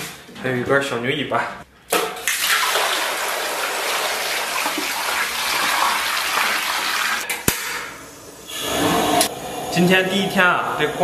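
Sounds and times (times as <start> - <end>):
water pouring into a metal basin: 2.3 - 7.3.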